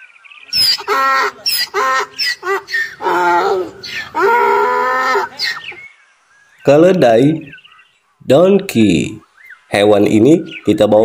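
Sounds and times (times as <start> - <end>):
donkey braying: 0.5 - 5.8.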